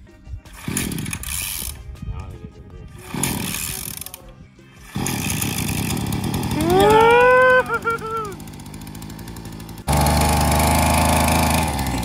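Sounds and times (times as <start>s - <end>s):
pull cord pulls: 0.5s - 1.8s, 3.0s - 12.0s
two-stroke engine running: 0.5s - 1.9s, 3.0s - 12.0s.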